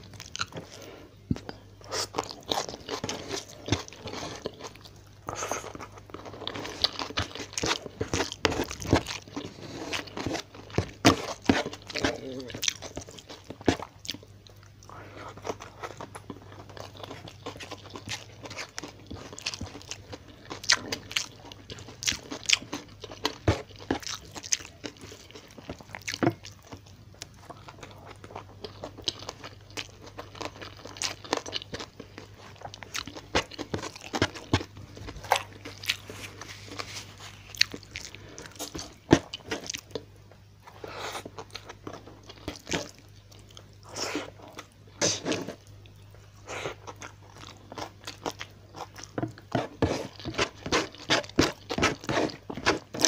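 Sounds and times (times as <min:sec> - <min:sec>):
close chewing and crunching: 0:00.0 - 0:53.0.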